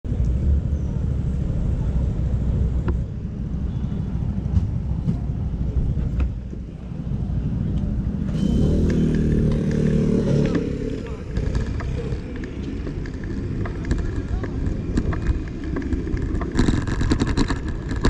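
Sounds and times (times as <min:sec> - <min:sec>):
traffic rumble: 0:00.0 - 0:18.0
steady engine hum: 0:00.1 - 0:18.0
car driving through intersection: 0:06.6 - 0:16.6.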